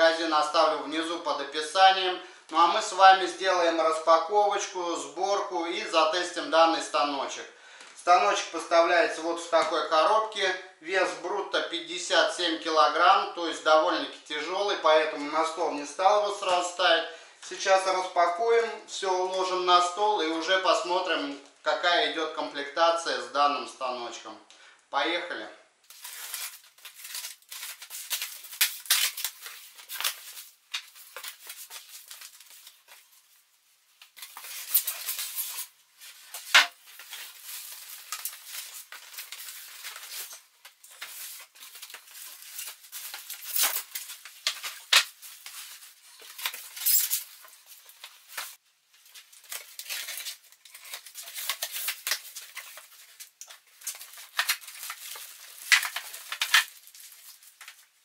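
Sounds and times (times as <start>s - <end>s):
plastic wrapping rustling: 25.9s - 58.0s.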